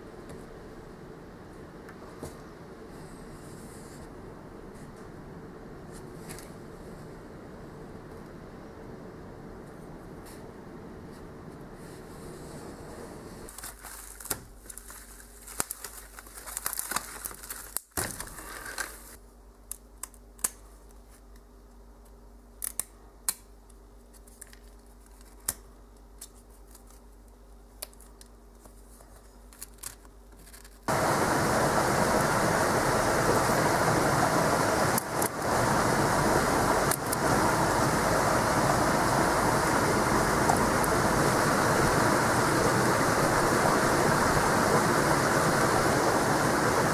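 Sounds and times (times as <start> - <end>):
loud steady rushing noise: 30.9 - 46.9.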